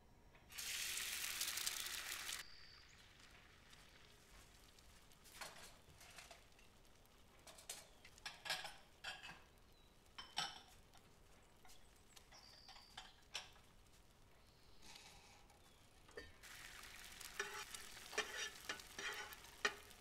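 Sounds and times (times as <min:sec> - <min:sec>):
dishes and cutlery clinking: 0:07.4 - 0:09.6, 0:10.2 - 0:10.8, 0:17.4 - 0:20.0.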